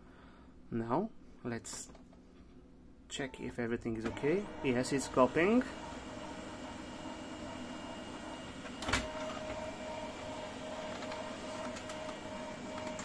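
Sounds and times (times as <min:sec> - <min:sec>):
laser printer mechanical whir: 0:04.1 - 0:13.0.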